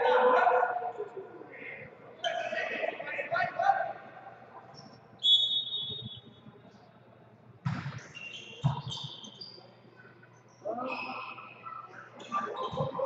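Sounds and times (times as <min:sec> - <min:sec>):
referee's whistle: 0:05.2 - 0:06.3, 0:08.1 - 0:09.6
volleyball hits echoing: 0:07.6 - 0:09.0
shoe squeaks: 0:08.1 - 0:09.8.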